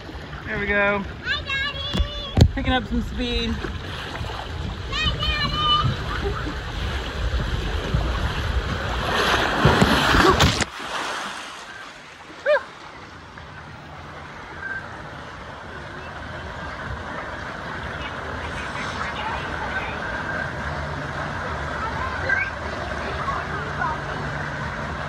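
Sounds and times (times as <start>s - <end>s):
water rushing down a slide: 3.8s - 13.1s
water pouring into pool: 6.0s - 13.0s
splash into pool: 6.8s - 12.8s.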